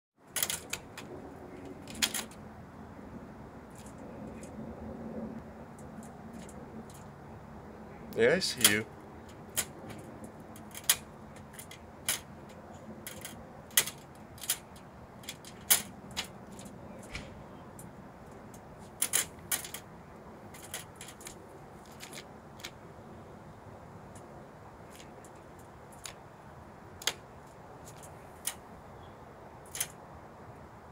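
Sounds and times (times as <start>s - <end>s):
squirrel rattling wire trap: 0.3s - 2.5s, 3.7s - 4.5s, 5.7s - 7.2s, 8.6s - 16.8s, 17.7s - 22.9s, 24.0s - 26.2s, 29.6s - 30.0s.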